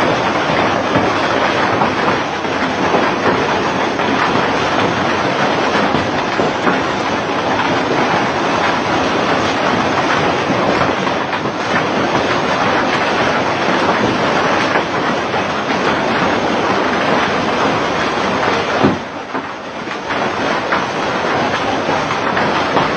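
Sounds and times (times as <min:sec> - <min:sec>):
heavy rain pouring: 0:00.0 - 0:22.9.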